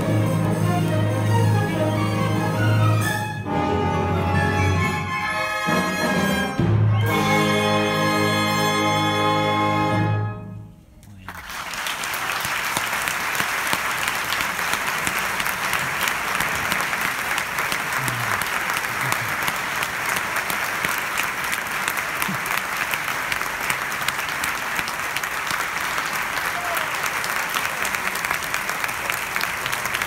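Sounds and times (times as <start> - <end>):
audience applauding: 11.2 - 30.0.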